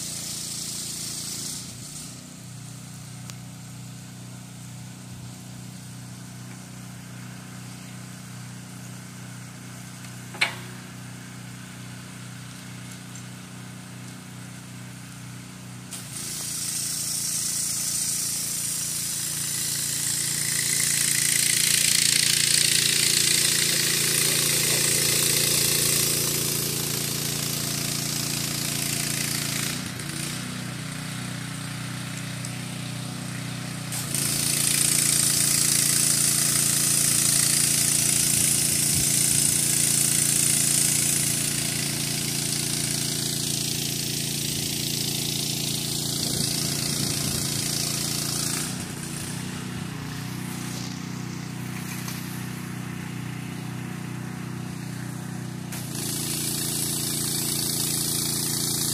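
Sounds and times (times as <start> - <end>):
low mechanical hum: 0.0 - 56.1
pressure washer spraying water: 0.0 - 58.9
sharp click: 10.0 - 10.7.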